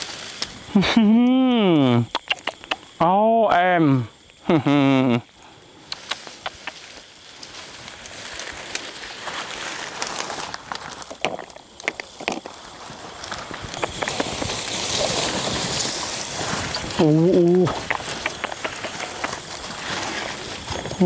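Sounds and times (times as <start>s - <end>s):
rustling crackling noise: 0.0s - 1.0s, 5.4s - 21.0s
sharp clicks and taps: 2.1s - 2.9s, 17.7s - 19.4s.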